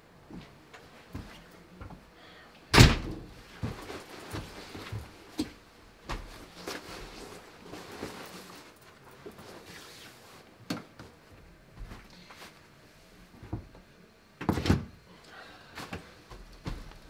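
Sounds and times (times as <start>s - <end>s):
clothing rustling: 3.3s - 10.5s.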